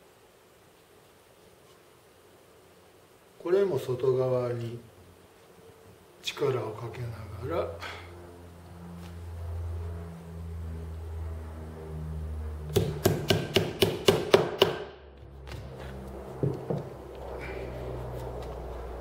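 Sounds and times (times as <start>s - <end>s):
hammer tapping tack into wood: 12.7s - 14.9s.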